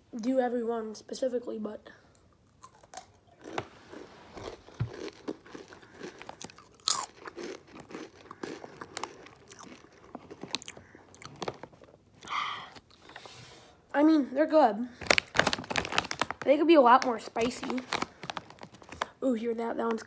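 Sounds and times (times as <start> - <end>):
person crunching chips: 2.4 - 13.1, 15.0 - 16.5, 17.3 - 19.1.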